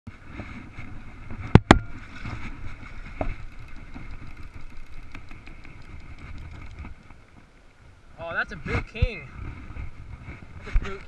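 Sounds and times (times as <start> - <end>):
river water flowing: 0.1 - 10.6.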